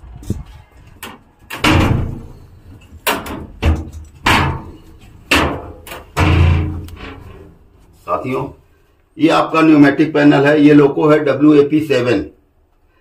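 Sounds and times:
metal doors banging shut: 0.2 - 7.5.

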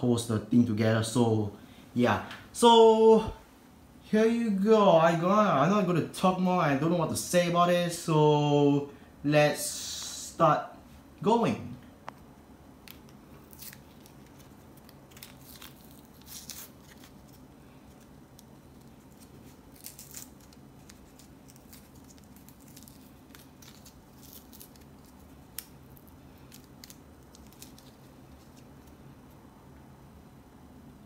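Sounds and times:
blister pack crinkling and tearing: 12.8 - 29.0.

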